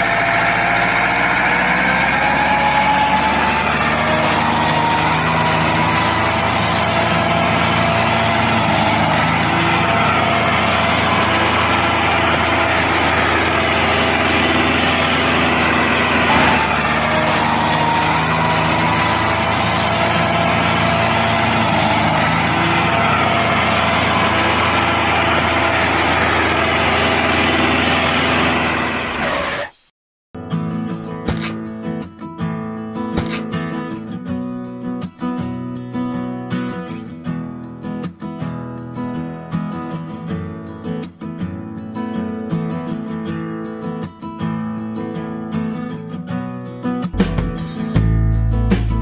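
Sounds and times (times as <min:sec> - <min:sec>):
tractor engine running: 0:00.0 - 0:29.8, 0:31.3 - 0:31.6, 0:33.2 - 0:33.4, 0:47.2 - 0:49.0.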